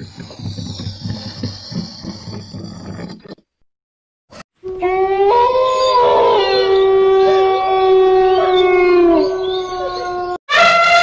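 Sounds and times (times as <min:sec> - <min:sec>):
dogs howling: 0:04.7 - 0:10.4
elephant trumpeting: 0:10.5 - 0:11.0.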